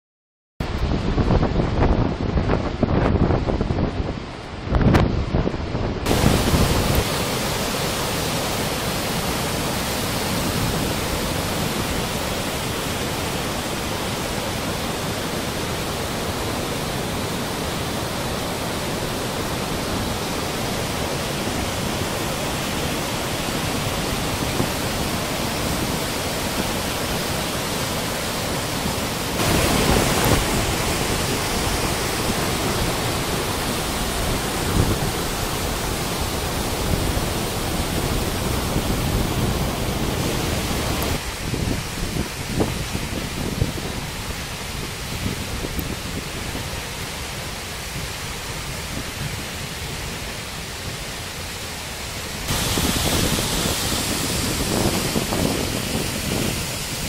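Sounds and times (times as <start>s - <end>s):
waterfall roaring over rocks: 0.6s - 57.0s.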